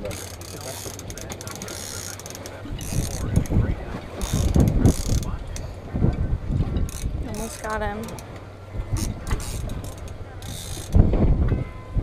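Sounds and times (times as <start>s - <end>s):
wind buffeting microphone: 0.0s - 12.0s
fishing reel clicking: 0.1s - 3.3s, 4.2s - 5.3s, 9.0s - 11.0s.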